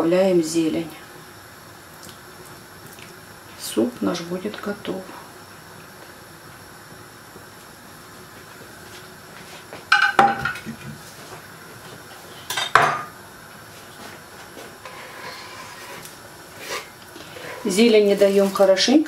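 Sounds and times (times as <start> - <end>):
frying pan clanking on hob: 9.9 - 10.7.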